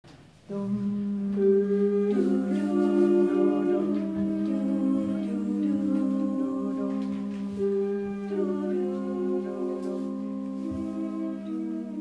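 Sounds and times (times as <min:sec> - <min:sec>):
vocal ensemble singing chords: 0:00.5 - 0:12.0.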